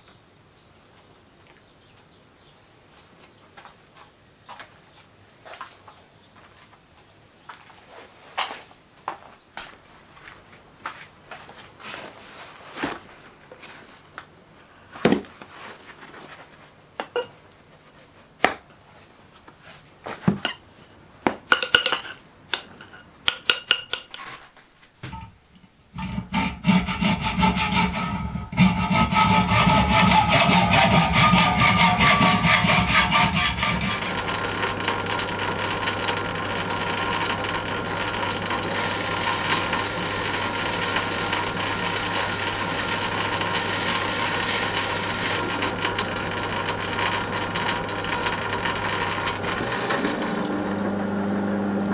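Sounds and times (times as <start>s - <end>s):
hacksaw cutting metal: 26.0s - 34.3s, 38.6s - 46.0s
metal lathe humming: 26.0s - 51.9s.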